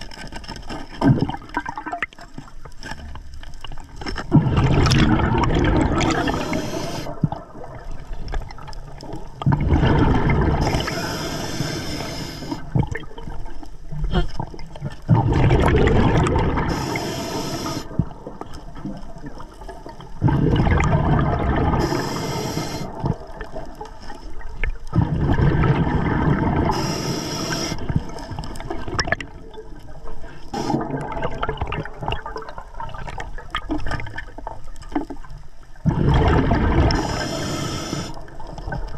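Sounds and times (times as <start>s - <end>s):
bubbling exhaled air: 4.3s - 13.2s, 15.1s - 18.3s, 20.2s - 23.6s, 24.9s - 29.6s, 30.2s - 33.0s, 35.8s - 38.9s
diver inhaling through regulator: 6.1s - 7.3s, 10.5s - 12.7s, 16.6s - 18.0s, 21.7s - 23.0s, 26.6s - 27.9s, 30.3s - 31.0s, 36.9s - 38.2s.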